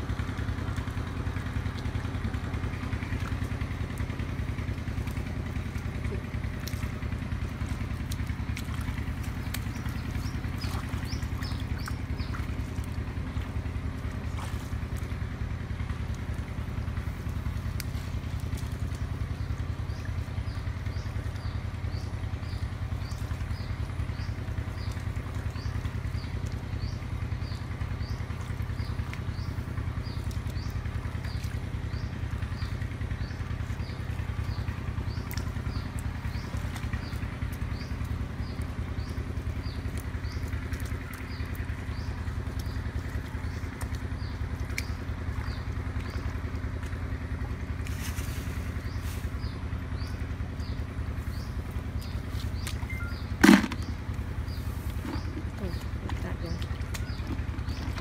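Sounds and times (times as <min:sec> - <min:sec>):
short high chirp: 0:52.8 - 0:53.3.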